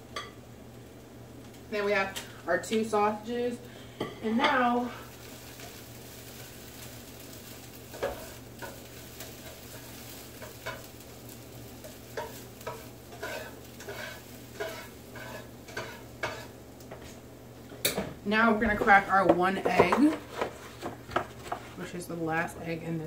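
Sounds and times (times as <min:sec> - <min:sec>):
onions sizzling in frying pan: 0:00.0 - 0:23.0
spatula scraping pan: 0:07.9 - 0:10.9, 0:11.8 - 0:16.6, 0:18.6 - 0:22.0.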